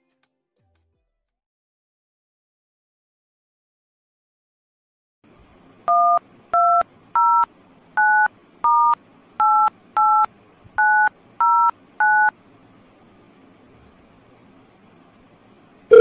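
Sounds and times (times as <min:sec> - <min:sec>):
keypad dialing beeps: 0:08.0 - 0:12.3.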